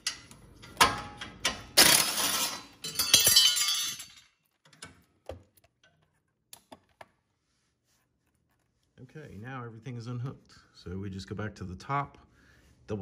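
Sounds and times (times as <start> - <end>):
steel hardware clinking and rattling: 0.0 - 5.1.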